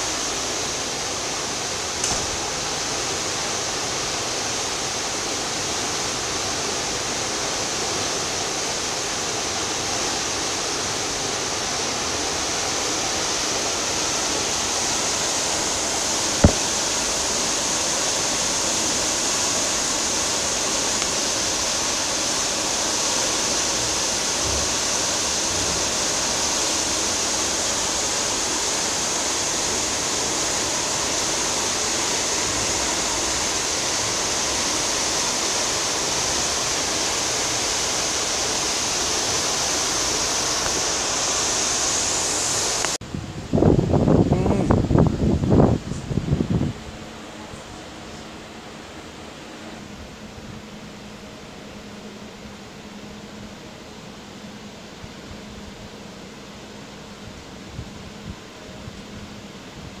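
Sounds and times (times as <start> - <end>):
ship wake rushing: 0.0 - 60.0
sharp click: 2.0 - 2.4.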